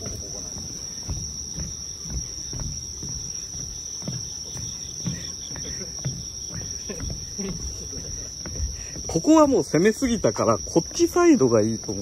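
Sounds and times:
footsteps on a footbridge: 0.0s - 12.0s
insects chirring: 0.0s - 12.0s.

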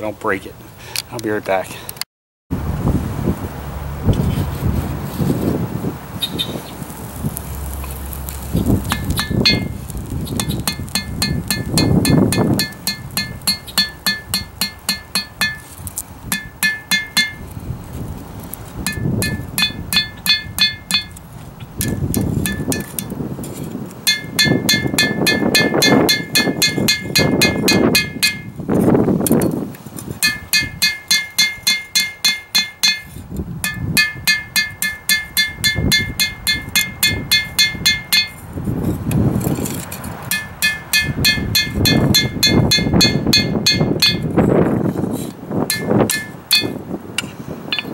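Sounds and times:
anvil ringing: 8.9s - 9.7s, 10.7s - 15.7s, 16.3s - 17.4s, 18.9s - 21.2s, 21.8s - 23.0s, 24.1s - 28.5s, 30.2s - 38.4s, 40.3s - 44.3s, 45.7s - 46.8s
hammer striking steel on anvil: 8.9s - 9.7s, 10.4s - 17.4s, 18.8s - 21.2s, 21.8s - 23.1s, 24.0s - 28.6s, 30.2s - 38.4s, 40.3s - 44.4s, 45.7s - 47.9s.

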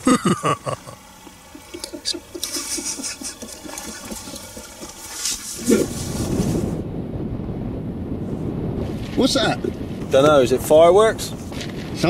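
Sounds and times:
man laughing: 0.0s - 4.3s, 5.6s - 5.9s
low rumble: 5.6s - 12.0s.

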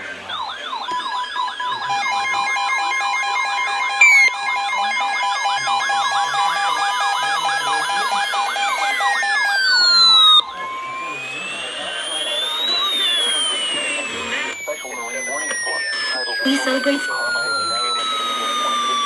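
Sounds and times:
siren-like alarm wails: 0.0s - 19.0s
alarm beeps: 0.2s - 19.0s
loud falling chirp: 4.0s - 4.4s.

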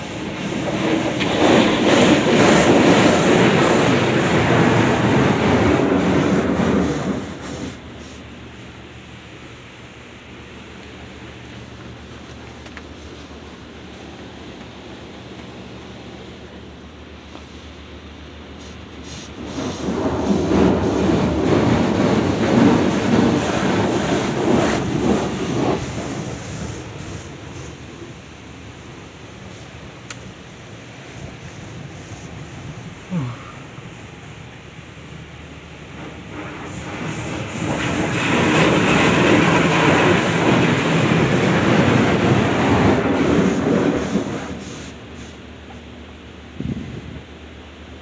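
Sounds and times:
water spray drumming on car: 0.0s - 8.7s, 18.6s - 35.2s, 35.8s - 45.8s.

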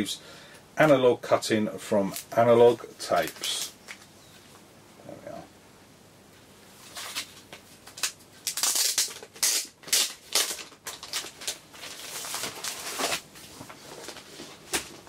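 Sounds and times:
plastic wrapping crinkling: 6.8s - 15.0s.

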